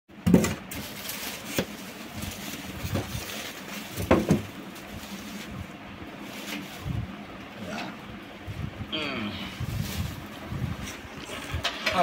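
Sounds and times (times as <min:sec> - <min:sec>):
plastic wrapping rustling: 0:00.4 - 0:07.3, 0:09.6 - 0:11.0
knocks on computer case: 0:04.0 - 0:04.5.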